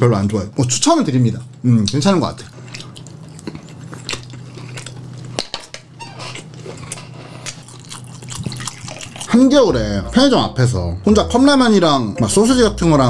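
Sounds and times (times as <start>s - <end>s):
biting and chewing: 2.5s - 9.4s.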